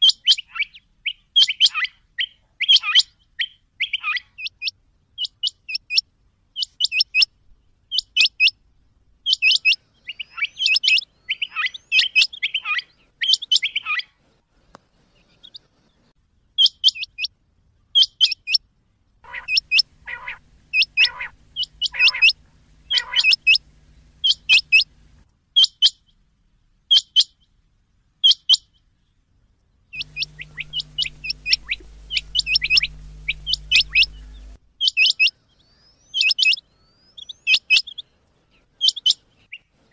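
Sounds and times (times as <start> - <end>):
steady hum and hiss: 18.8 - 25.5, 29.2 - 34.8
quail calling: 19.2 - 25.7, 30.0 - 35.4.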